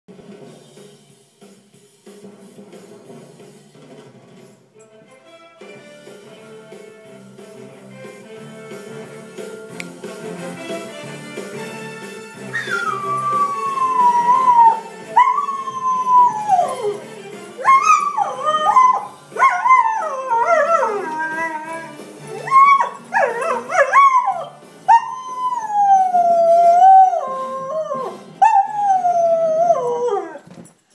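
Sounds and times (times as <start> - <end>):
tv theme music: 4.9 - 30.2
dog howling: 12.5 - 30.4
dog yipping: 12.6 - 13.9, 17.6 - 19.6, 21.0 - 25.3.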